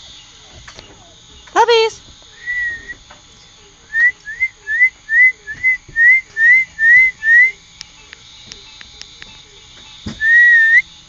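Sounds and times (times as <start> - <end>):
person whistling short rising notes: 2.4 - 3.0, 10.2 - 10.8.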